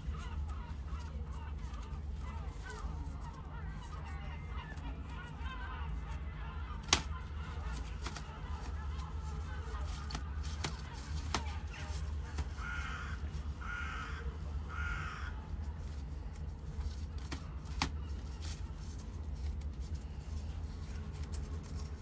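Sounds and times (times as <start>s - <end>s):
crow cawing: 0.0s - 15.6s.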